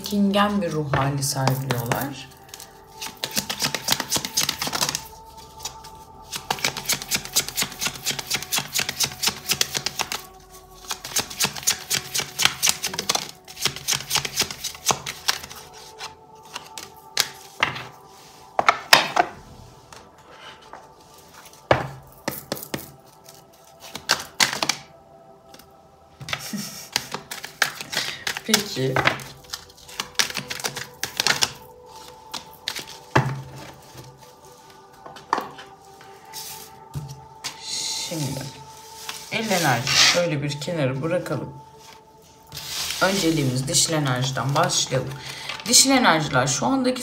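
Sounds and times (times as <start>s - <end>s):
soft background music: 0.0s - 47.0s
cards being shuffled: 1.4s - 5.7s, 6.3s - 18.0s, 21.4s - 24.9s, 25.5s - 35.6s.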